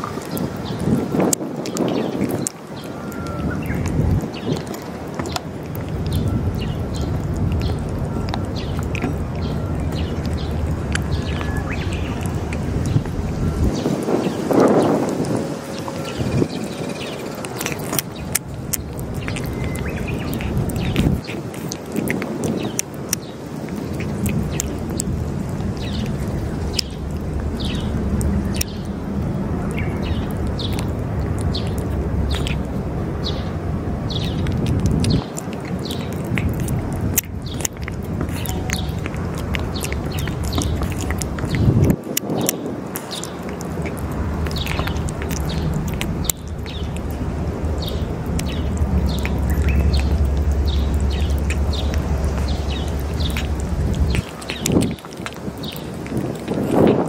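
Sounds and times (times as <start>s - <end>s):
cat licking and chewing: 0.0s - 57.0s
small birds chirping: 0.0s - 57.0s
steady low rumble: 0.0s - 57.0s.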